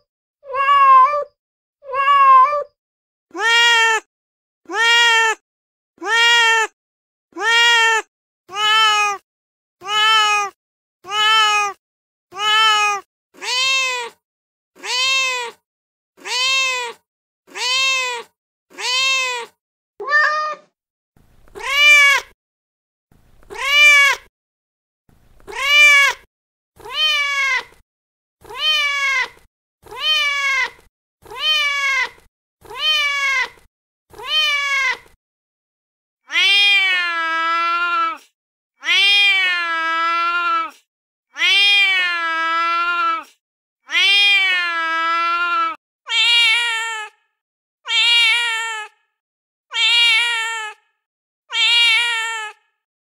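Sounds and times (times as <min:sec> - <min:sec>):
recorded cat meows: 0:00.0 - 0:04.1, 0:04.7 - 0:05.4, 0:06.0 - 0:06.8, 0:07.4 - 0:09.2, 0:09.8 - 0:14.2, 0:14.8 - 0:15.6, 0:16.2 - 0:20.7, 0:21.5 - 0:22.3, 0:23.5 - 0:24.3, 0:25.4 - 0:26.2, 0:26.8 - 0:27.8, 0:28.4 - 0:35.2, 0:36.2 - 0:49.1, 0:49.7 - 0:52.8
higher cat call: 0:20.0 - 0:20.7.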